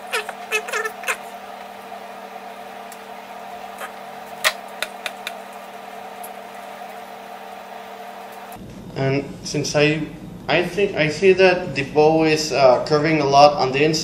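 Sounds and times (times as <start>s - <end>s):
steady background hum: 0.0s - 14.0s.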